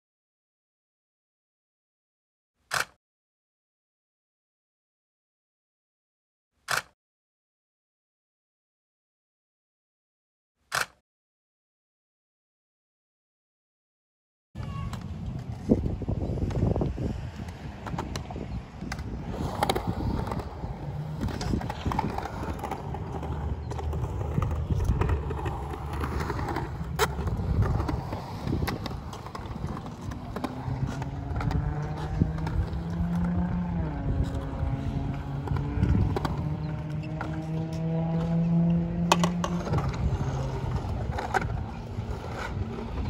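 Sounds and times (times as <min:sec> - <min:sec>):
skateboard clicks and knocks: 0:02.7 - 0:03.0, 0:06.7 - 0:06.9, 0:10.7 - 0:11.0, 0:14.6 - 0:43.0
skateboard wheels rolling on concrete: 0:14.6 - 0:43.0.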